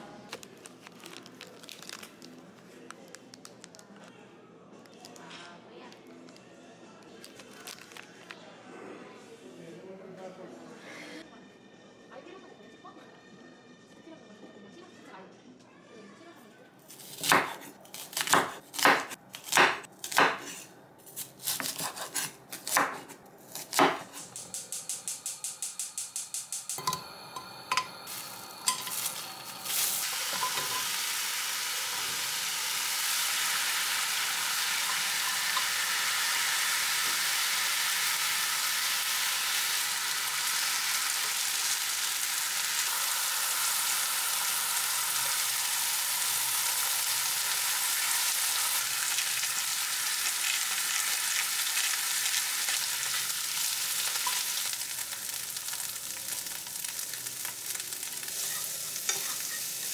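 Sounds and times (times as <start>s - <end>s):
beef sizzling in a frying pan: 24.8s - 59.9s.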